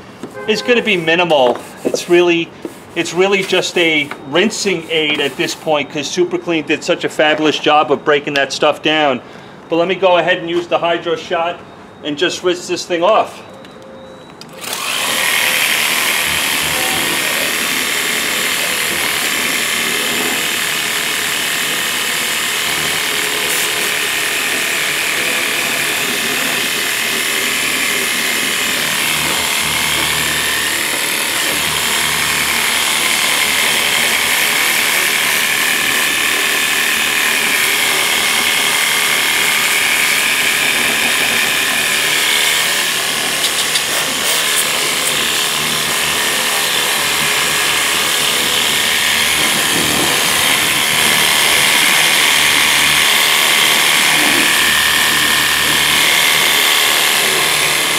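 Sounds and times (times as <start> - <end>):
pressure washer pump whirring: 0.0 - 5.8, 14.5 - 57.9
water jet hissing: 43.4 - 45.3.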